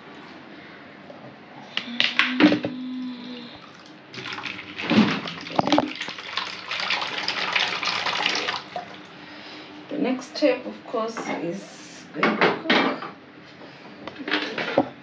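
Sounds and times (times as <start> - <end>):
water splashing and sloshing: 2.2 - 9.4.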